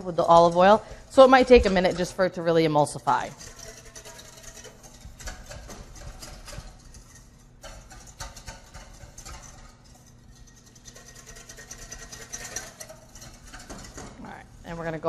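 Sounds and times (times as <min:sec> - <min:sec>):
wire whisk rattling in metal bowl: 0:00.0 - 0:15.0.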